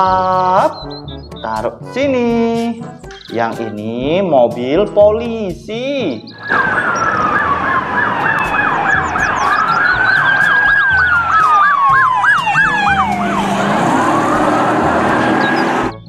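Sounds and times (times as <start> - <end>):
police siren wail: 6.4 - 16.0
police siren yelp: 6.4 - 16.0.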